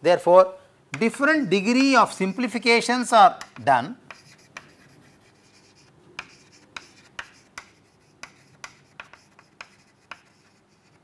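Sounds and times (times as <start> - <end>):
chalk tapping on blackboard: 0.9 - 2.7, 3.4 - 11.0
chalk scratching: 1.6 - 2.7, 3.4 - 11.0.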